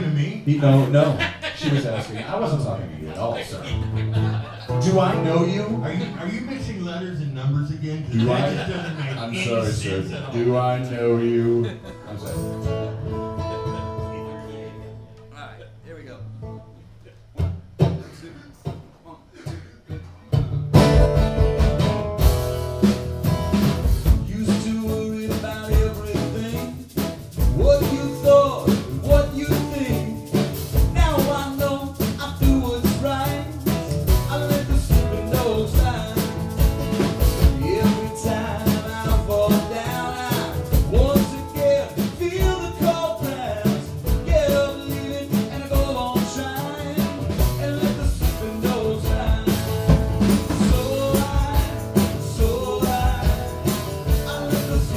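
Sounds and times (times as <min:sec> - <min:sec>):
acoustic guitars: 0:00.0 - 0:54.9
drum kit: 0:17.2 - 0:54.9
man singing lead vocal: 0:24.0 - 0:54.9.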